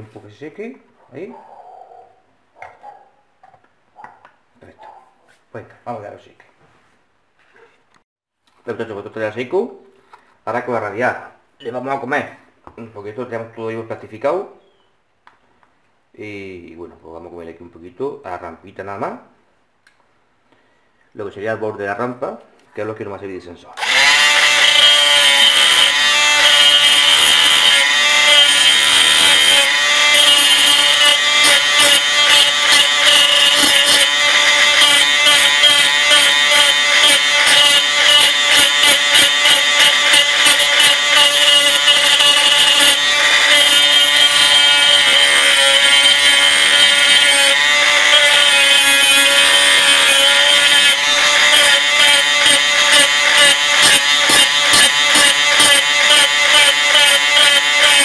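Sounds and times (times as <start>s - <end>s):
power grinder grinding plastic: 23.8s - 58.0s.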